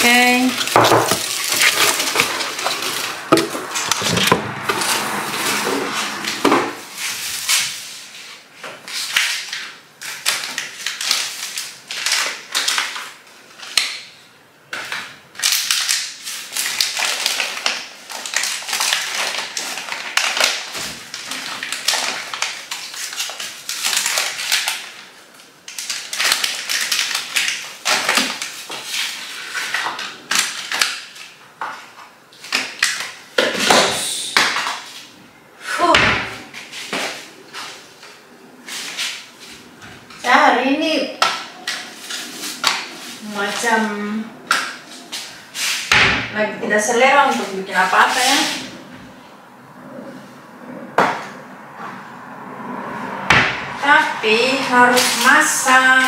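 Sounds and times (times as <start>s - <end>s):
packets rustling and crinkling: 0.0s - 4.1s, 4.8s - 14.1s, 15.3s - 33.7s
groceries knocking and clattering: 0.0s - 7.5s, 14.7s - 35.0s.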